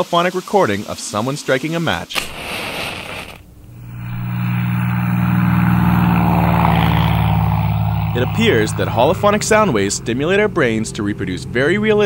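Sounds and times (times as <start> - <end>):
match hissing as it burns: 2.1 - 3.5
propeller aircraft engine drone: 3.1 - 12.0.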